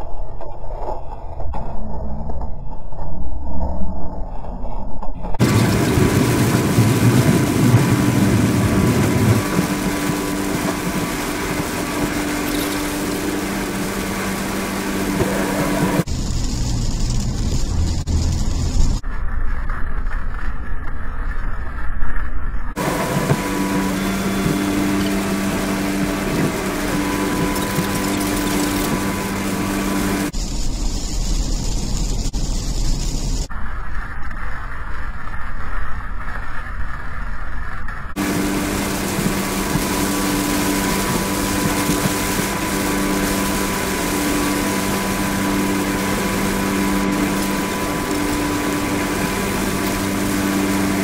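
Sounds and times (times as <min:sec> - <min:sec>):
car engine and tyre noise: 0:00.0 - 0:51.0
heavy low rumble: 0:00.0 - 0:51.0
deeper rumble with hiss: 0:05.4 - 0:19.0.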